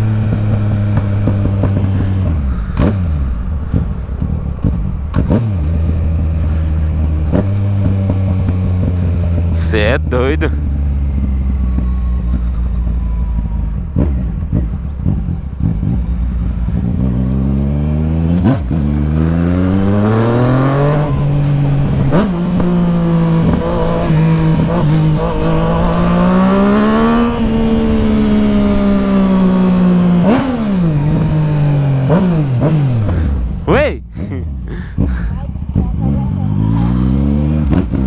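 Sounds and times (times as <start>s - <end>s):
motorcycle engine revving: 0.0s - 38.0s.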